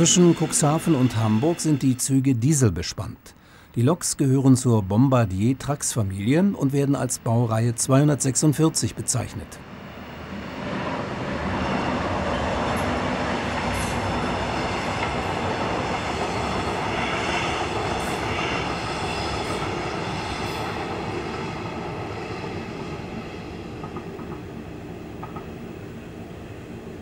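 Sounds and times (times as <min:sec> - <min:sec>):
train wheels rumbling on rails: 0:09.7 - 0:27.0.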